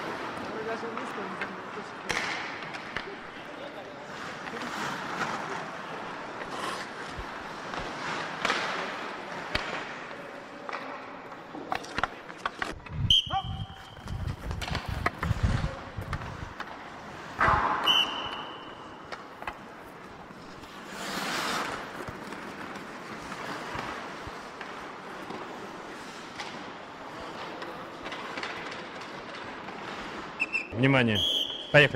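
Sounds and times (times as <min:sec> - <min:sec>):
skate blades scraping ice: 0:00.0 - 0:30.8
sticks clicking against puck: 0:06.2 - 0:12.8, 0:17.9 - 0:30.6.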